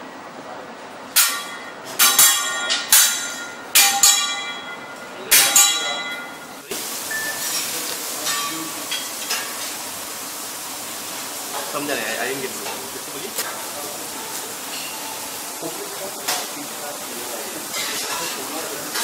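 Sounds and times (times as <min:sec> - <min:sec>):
metal spatulas clanging: 0:01.2 - 0:06.7, 0:07.4 - 0:09.7, 0:17.7 - 0:19.0
food sizzling on griddle: 0:05.3 - 0:19.0.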